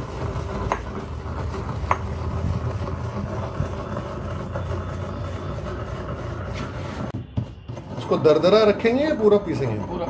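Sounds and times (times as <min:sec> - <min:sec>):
mortar and pestle grinding seeds: 0:00.0 - 0:10.0
pestle clicking on stone: 0:00.1 - 0:02.4.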